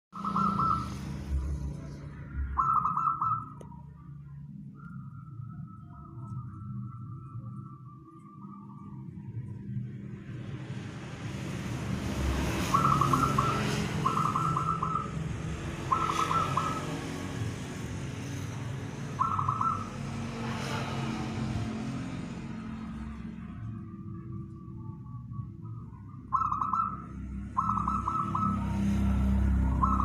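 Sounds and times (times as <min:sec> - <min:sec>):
dove cooing: 0:02.4 - 0:03.7, 0:12.6 - 0:15.2, 0:15.8 - 0:17.1, 0:19.2 - 0:20.0, 0:26.3 - 0:30.0.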